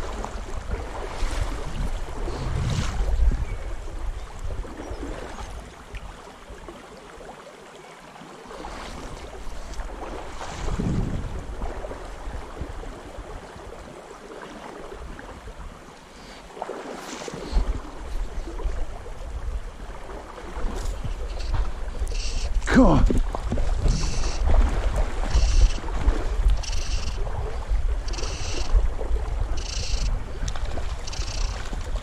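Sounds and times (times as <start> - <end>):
wind buffeting microphone: 0.0 - 5.8, 9.0 - 13.9, 17.4 - 32.0
river water rushing: 0.0 - 32.0.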